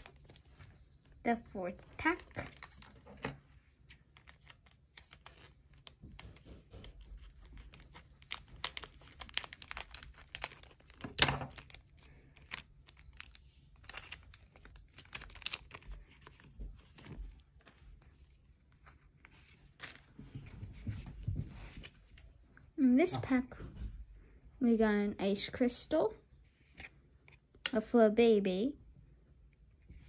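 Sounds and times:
foil pack crinkling: 4.1 - 17.8.

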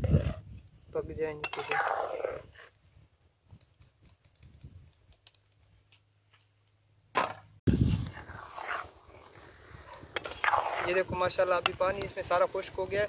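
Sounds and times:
wind rushing on microphone: 0.0 - 1.4, 2.3 - 5.1, 7.7 - 13.0.

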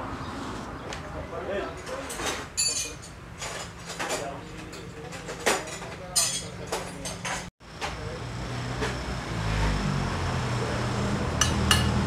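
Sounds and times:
metal tools knocking on metal: 2.1 - 7.5.

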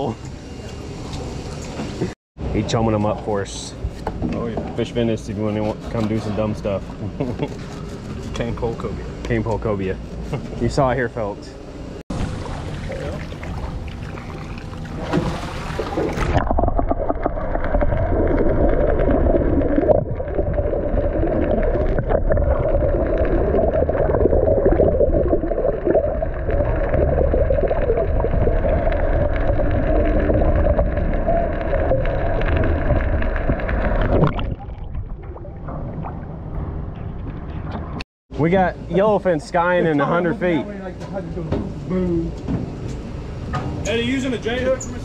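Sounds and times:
underwater rush with gurgling: 12.1 - 38.0.

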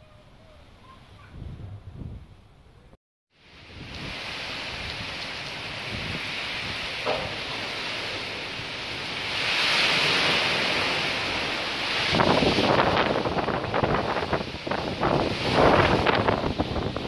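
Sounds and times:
gusting wind: 0.0 - 17.0
wind buffeting the microphone: 1.2 - 2.7, 3.4 - 17.0
heavy rain pouring: 3.4 - 17.0.

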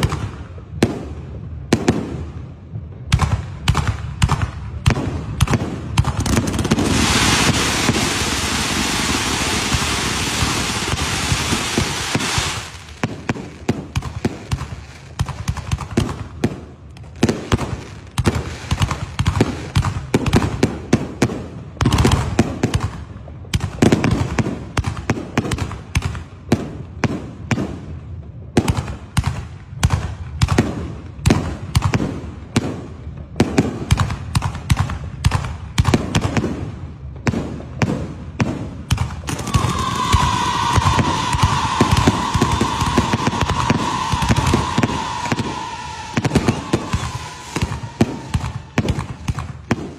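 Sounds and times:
fireworks hissing crackle: 5.5 - 23.0, 39.2 - 49.9
firework shells bursting: 6.0 - 20.5, 39.0 - 49.9.

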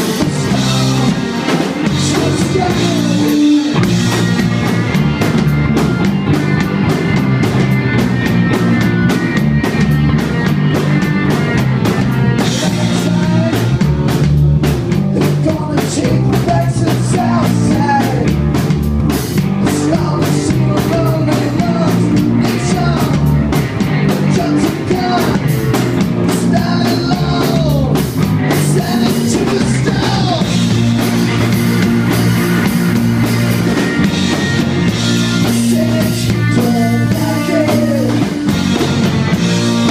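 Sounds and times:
man singing lead: 0.0 - 4.6, 11.3 - 18.6, 19.4 - 31.5, 34.4 - 38.9
bass guitar: 0.0 - 39.9
drum kit: 0.0 - 39.9
electric guitar: 0.0 - 39.9.

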